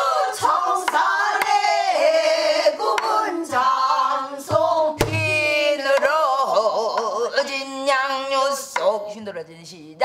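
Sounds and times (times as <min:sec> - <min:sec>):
woman singing with vibrato: 0:00.0 - 0:10.0
barrel drum strokes: 0:04.5 - 0:06.2.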